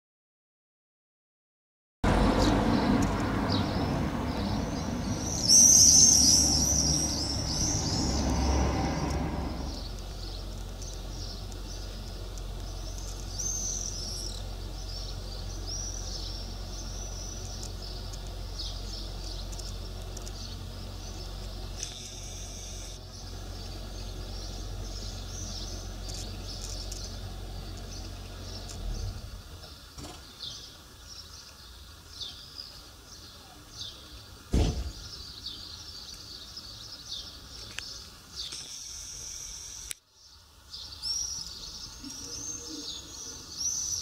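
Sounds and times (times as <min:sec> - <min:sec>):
low rumbling noise: 0:02.0 - 0:29.9
swifts screaming: 0:02.3 - 0:27.2.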